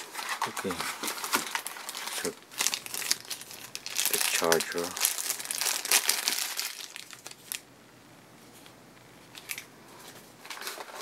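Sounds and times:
plastic bag crinkling: 0.0 - 7.6.

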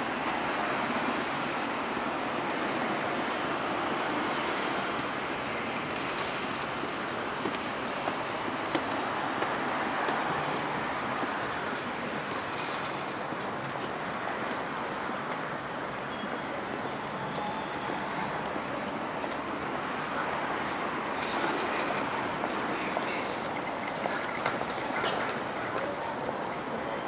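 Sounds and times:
traffic hum: 0.0 - 27.0
crowd murmur: 16.6 - 27.0.

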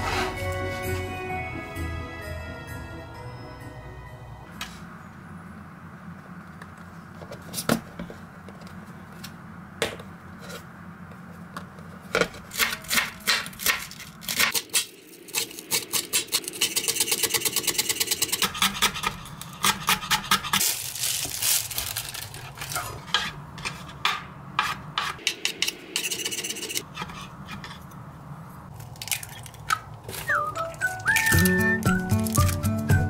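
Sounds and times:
steady low hum: 0.0 - 20.6.

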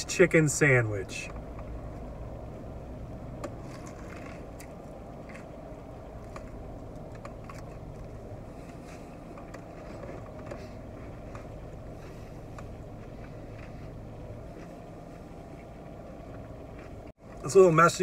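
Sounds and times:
car engine idling: 0.0 - 18.0
person chewing food: 3.5 - 17.1.

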